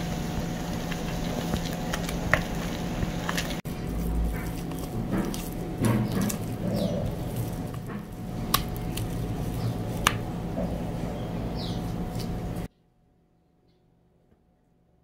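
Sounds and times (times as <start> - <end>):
spatula stirring wet dough: 0.0 - 12.7.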